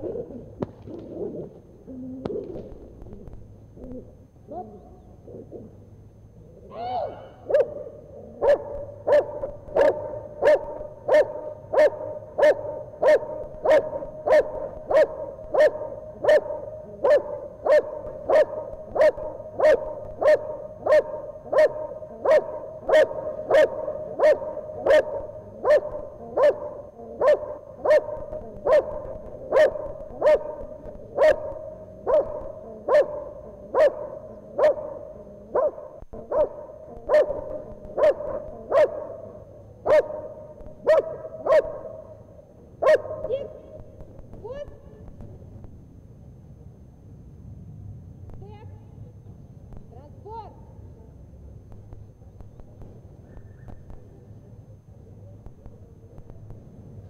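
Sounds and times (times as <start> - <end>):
dog barking: 7.4 - 42.2, 42.8 - 43.6.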